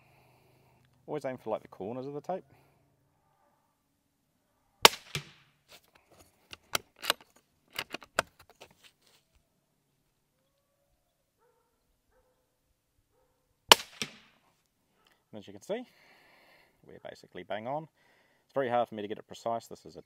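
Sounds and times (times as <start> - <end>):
rifle shot crack: 4.8 - 5.5, 13.7 - 14.4
rifle handling clicks and knocks: 5.0 - 8.9.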